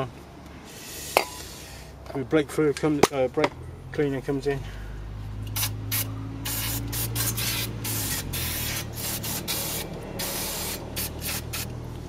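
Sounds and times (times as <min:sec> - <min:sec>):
aerosol spray hissing: 0:05.5 - 0:11.7.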